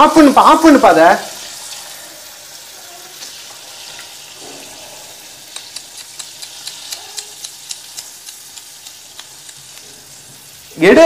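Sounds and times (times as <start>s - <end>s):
oil sizzling: 0.0s - 11.0s
sharp crackling pops: 5.4s - 10.2s.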